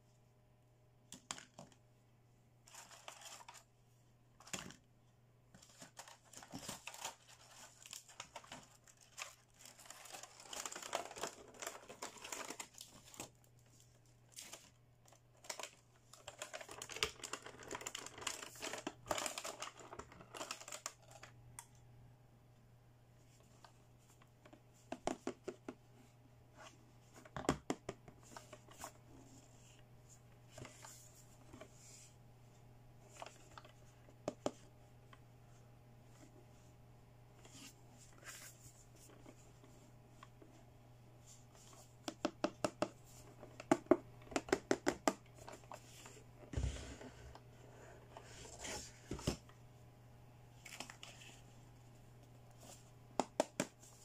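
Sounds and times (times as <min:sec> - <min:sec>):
plastic packaging crinkling: 0:05.6 - 0:21.4.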